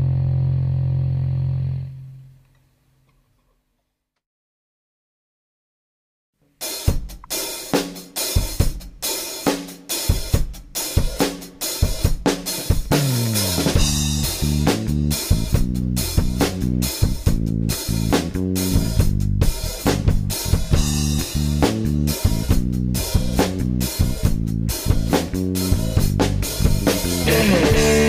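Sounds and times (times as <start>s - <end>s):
bass and guitar: 0.0s - 2.4s, 12.8s - 28.0s
drum kit playing: 6.6s - 28.0s.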